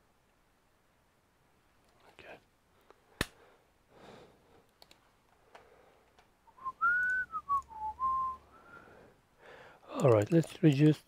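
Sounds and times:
person whistling a tune: 6.5s - 8.8s.

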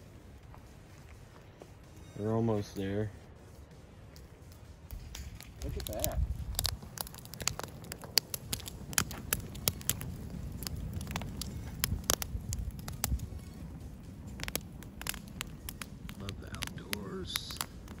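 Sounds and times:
wood fire crackling and popping: 0.0s - 18.0s
low rumble: 3.2s - 16.9s.

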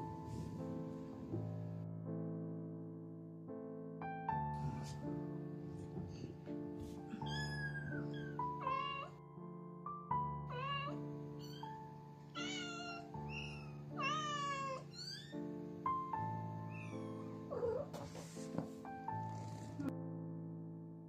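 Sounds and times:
background piano music: 0.0s - 21.0s
kittens meowing: 7.1s - 9.2s, 10.5s - 11.8s, 12.4s - 15.4s, 16.6s - 17.9s.

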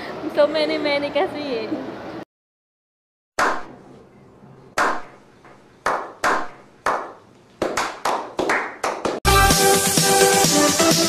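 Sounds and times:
men clapping slowly: 5.8s - 9.2s
electronic dance music: 9.3s - 11.0s.

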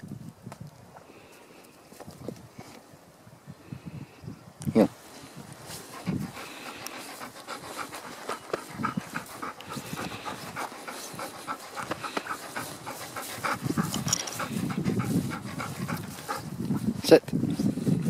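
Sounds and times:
dog panting: 5.7s - 17.1s.

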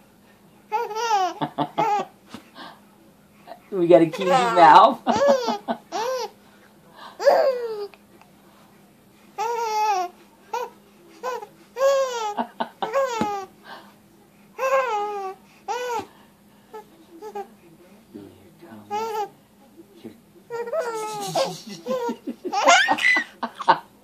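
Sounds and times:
baby laughing in squealing bursts: 20.6s - 23.4s.

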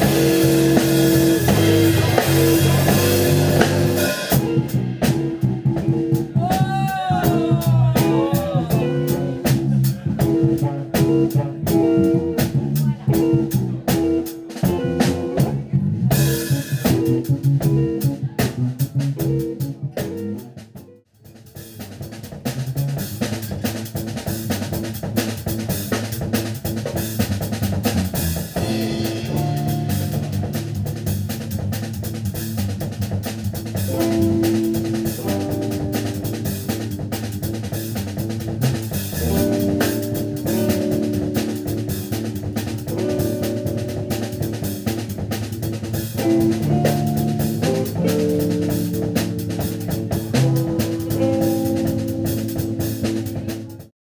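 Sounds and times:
electric guitar: 0.0s - 20.9s, 22.7s - 53.9s
drum kit: 0.0s - 54.0s
electric bass: 0.0s - 54.0s.

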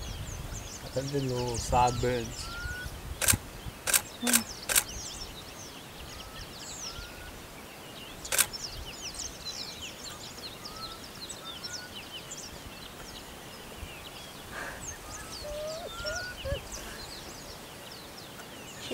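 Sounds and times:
birds chirping: 0.0s - 18.9s
sharp click: 3.2s - 5.0s, 8.3s - 8.5s
low bird whistles: 15.0s - 16.8s.

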